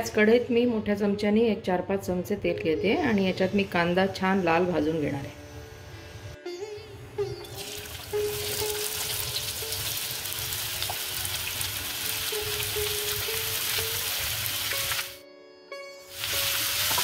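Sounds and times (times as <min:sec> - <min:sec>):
onions sizzling in hot oil: 0:07.6 - 0:15.2, 0:16.1 - 0:17.0.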